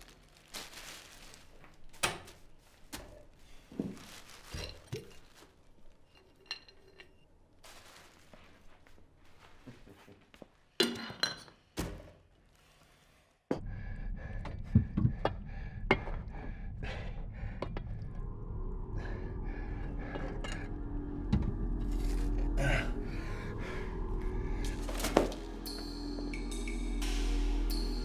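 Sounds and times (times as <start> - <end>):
steady low hum: 13.6 - 28.0.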